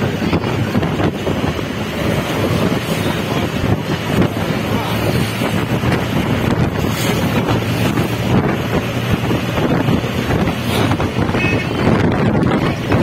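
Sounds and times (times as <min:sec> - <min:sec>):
car road rumble: 0:00.0 - 0:13.0
wind buffeting microphone: 0:00.0 - 0:13.0.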